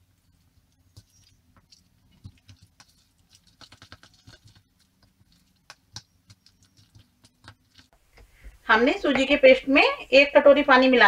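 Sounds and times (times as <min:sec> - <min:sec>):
spoon scraping batter in bowl: 0:00.4 - 0:08.0.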